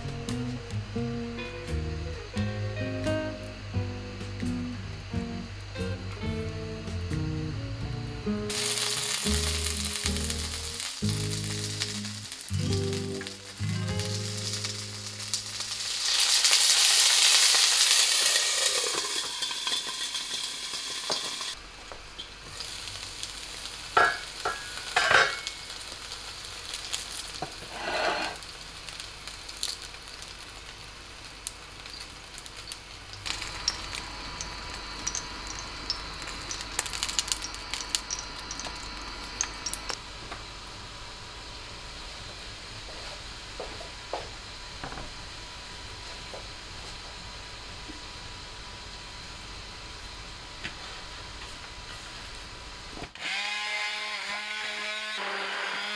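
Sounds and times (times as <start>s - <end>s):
water hissing in hot pan: 7.5s - 21.6s, 22.2s - 40.2s
fizzing frying sound: 8.5s - 42.4s.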